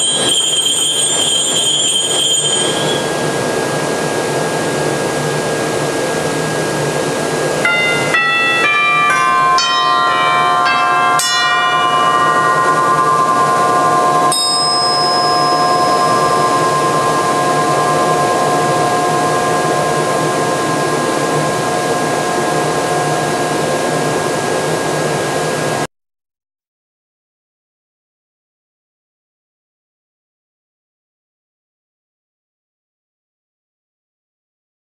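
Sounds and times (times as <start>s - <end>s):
bell-like organ notes: 7.6s - 24.3s.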